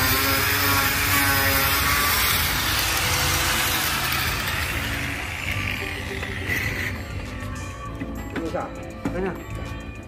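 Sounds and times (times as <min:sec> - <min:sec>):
power tool cutting wood: 0:00.0 - 0:07.7.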